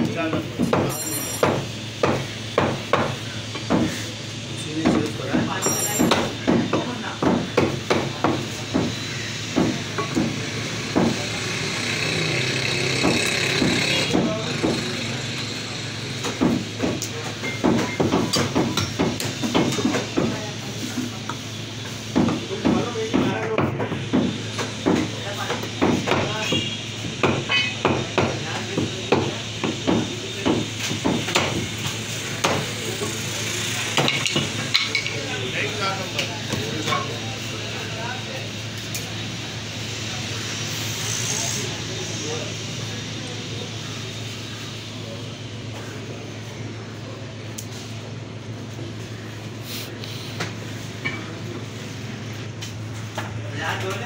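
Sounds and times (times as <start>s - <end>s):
cleavers chopping meat on wood: 0.0s - 15.4s, 16.1s - 20.6s, 21.3s - 32.8s.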